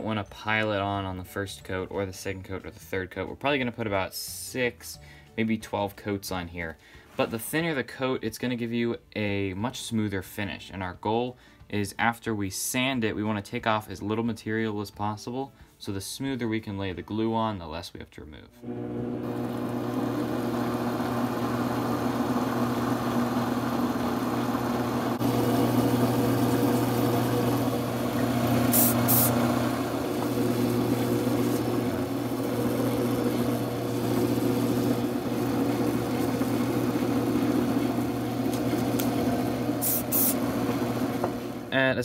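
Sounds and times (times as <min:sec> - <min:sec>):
lathe motor humming: 0:18.6 - 0:41.7
short high hisses: 0:28.7 - 0:29.4, 0:39.8 - 0:40.4.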